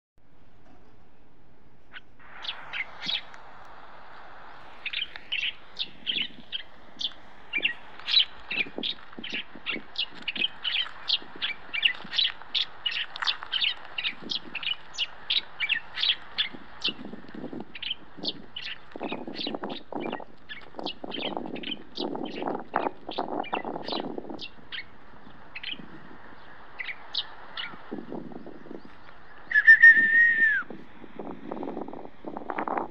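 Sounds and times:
bird chirping rapidly: 1.9s - 3.3s, 4.7s - 17.1s, 17.7s - 30.7s
whistle-like tone: 29.5s - 30.7s.

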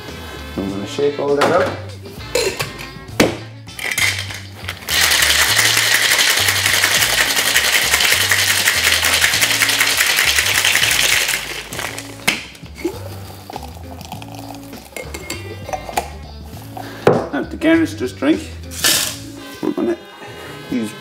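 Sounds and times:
background music with bass: 0.0s - 21.0s
ice rattling in cocktail shaker: 3.7s - 12.2s, 13.2s - 16.0s.

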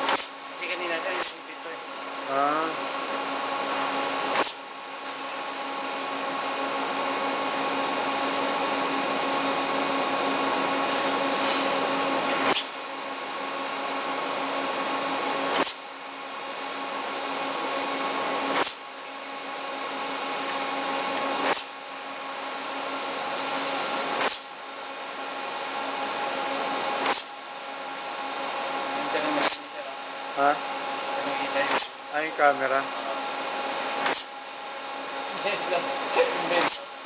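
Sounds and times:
sharp machine click: 0.0s - 0.3s, 4.3s - 4.6s, 12.5s - 12.8s, 15.6s - 15.8s, 18.6s - 18.8s, 34.0s - 34.3s, 36.6s - 36.9s
machine hum and whine: 0.0s - 37.0s.

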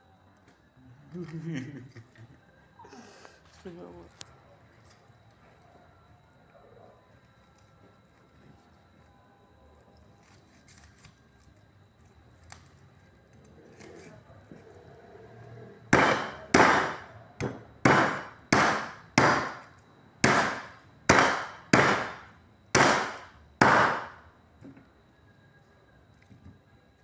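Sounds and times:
knife chopping on chopping board: 15.9s - 19.6s, 20.2s - 22.2s, 22.8s - 24.1s.

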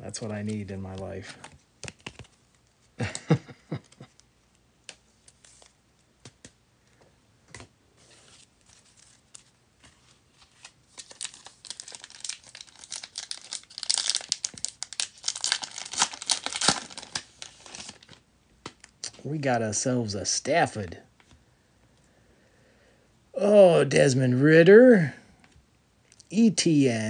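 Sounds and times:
wrapper tearing and crinkling: 10.4s - 18.2s.

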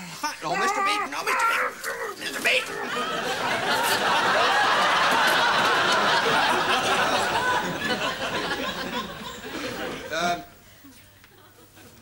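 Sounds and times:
audience laughing: 2.6s - 10.5s.

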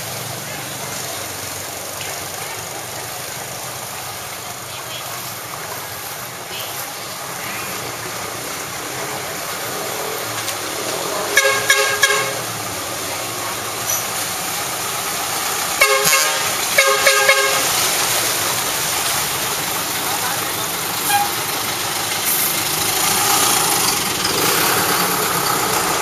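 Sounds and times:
vehicles driving through floodwater: 0.0s - 26.0s
vehicle horn honking: 11.3s - 12.5s, 15.8s - 17.8s, 21.0s - 21.4s.

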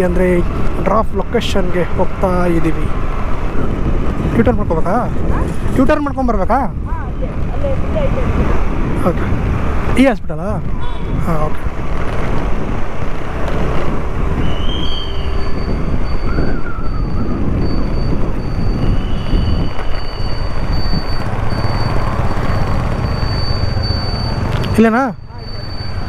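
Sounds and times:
passing traffic: 0.0s - 26.0s
tyre and road noise: 0.0s - 26.0s
wind on microphone: 2.9s - 9.9s, 10.6s - 23.1s
scooter engine hum: 6.8s - 10.0s, 10.6s - 26.0s.

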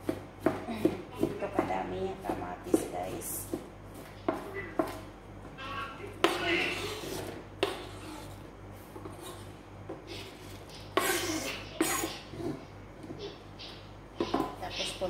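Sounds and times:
knife scraping plastic cutting board: 6.2s - 8.4s.

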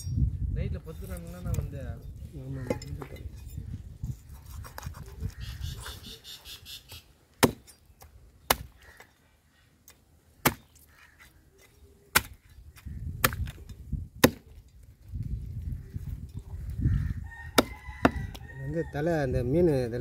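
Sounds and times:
cleaver chopping on wooden block: 7.4s - 7.7s, 8.5s - 8.8s, 10.4s - 10.8s, 12.1s - 12.4s, 13.2s - 13.6s, 14.2s - 14.5s, 17.6s - 18.3s.

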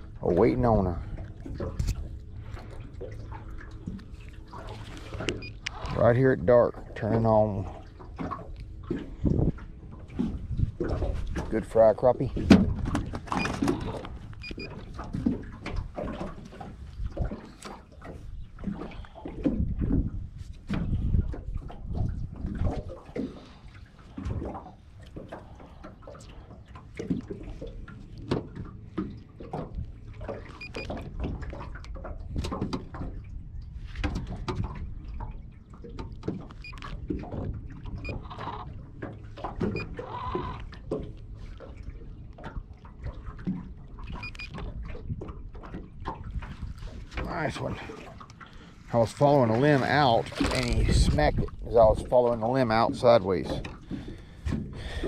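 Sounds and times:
waves slapping metal boat hull: 0.0s - 55.0s
wind rumbling on microphone: 0.0s - 55.0s.

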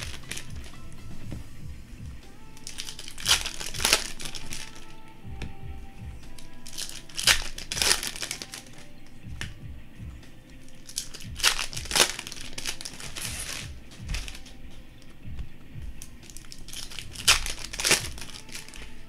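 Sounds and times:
foil wrappers crinkling and tearing: 0.0s - 0.8s, 2.5s - 5.0s, 6.3s - 8.9s, 10.7s - 14.6s, 16.0s - 19.0s
background music: 0.0s - 19.0s.

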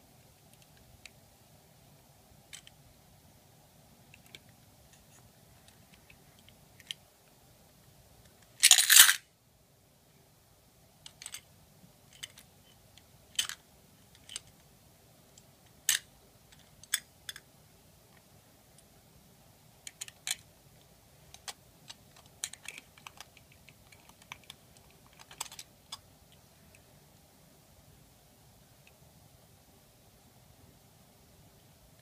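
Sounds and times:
toy truck parts clicking: 8.4s - 9.2s, 11.1s - 11.4s, 12.1s - 12.5s, 13.3s - 14.6s, 15.8s - 17.4s, 19.9s - 20.4s, 21.3s - 26.0s.

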